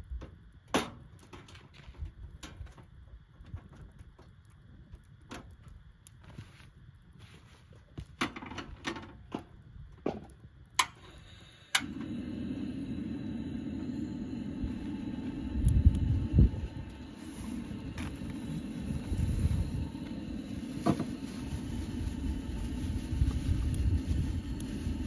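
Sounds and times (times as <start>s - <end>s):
stove ignition click: 10.8s - 17.1s
camp stove burner rushing: 10.8s - 25.0s.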